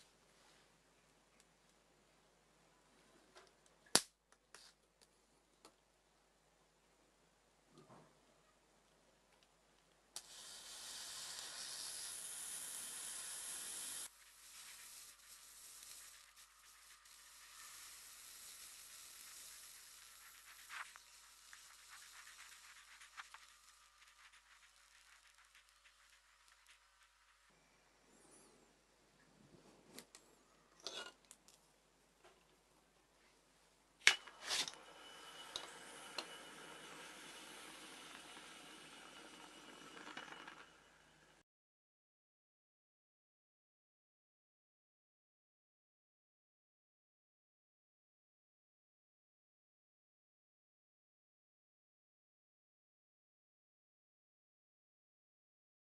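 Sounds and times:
faint crackling hiss: 0:07.6 - 0:41.4
loud sizzling hiss: 0:10.2 - 0:27.7, 0:34.4 - 0:41.4.

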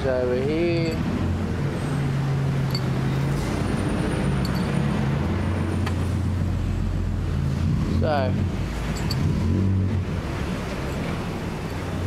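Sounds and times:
metal shells clicking on vise: 0:02.6 - 0:02.9, 0:04.4 - 0:04.7, 0:08.9 - 0:09.3.

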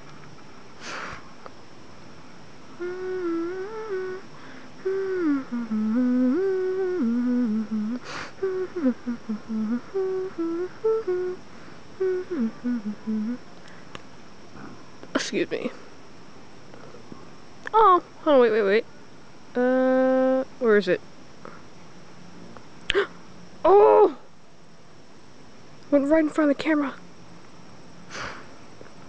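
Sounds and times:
hissy breath: 0:00.8 - 0:01.4, 0:04.2 - 0:05.4, 0:08.0 - 0:08.6, 0:28.0 - 0:28.6
person humming a tune: 0:02.8 - 0:11.4, 0:12.0 - 0:13.4, 0:19.6 - 0:20.5.

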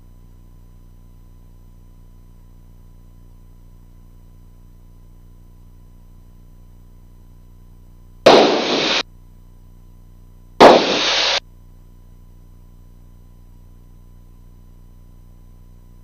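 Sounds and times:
faint steady hum: 0:00.0 - 0:09.0, 0:09.6 - 0:16.0
radio static hiss: 0:08.3 - 0:09.0, 0:10.6 - 0:11.4
sharp click: 0:08.3 - 0:09.0, 0:10.6 - 0:11.4.

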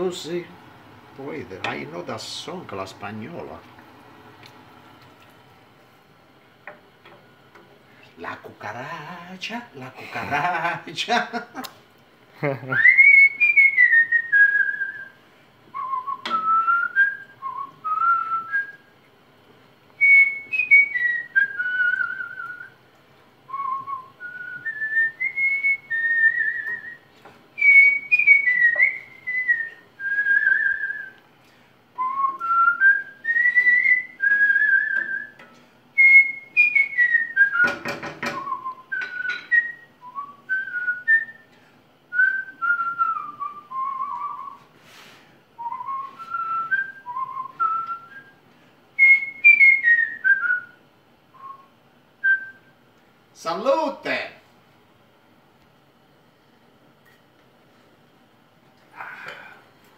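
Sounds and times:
man whistling a melody: 0:12.8 - 0:18.9, 0:20.0 - 0:22.8, 0:23.5 - 0:31.2, 0:32.0 - 0:35.4, 0:36.0 - 0:41.5, 0:42.1 - 0:44.7, 0:45.6 - 0:48.4, 0:49.0 - 0:50.8, 0:51.4 - 0:52.7.

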